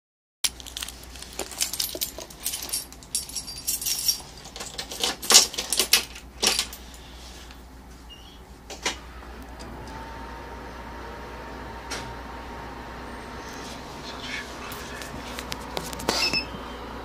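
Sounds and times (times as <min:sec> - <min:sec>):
keys jangling: 0:00.5 - 0:07.0.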